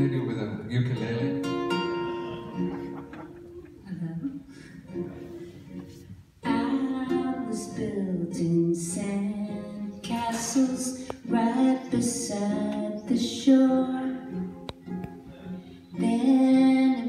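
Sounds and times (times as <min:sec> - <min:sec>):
acoustic guitar: 0:00.0 - 0:17.0
ukulele: 0:00.0 - 0:17.0
woman singing: 0:06.4 - 0:14.5, 0:15.9 - 0:17.0.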